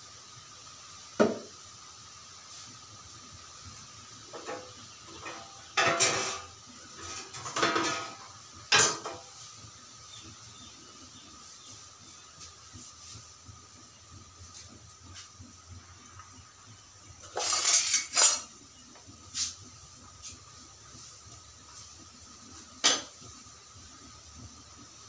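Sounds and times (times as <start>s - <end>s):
metal utensils clattering: 4.4s - 9.2s, 17.2s - 18.5s.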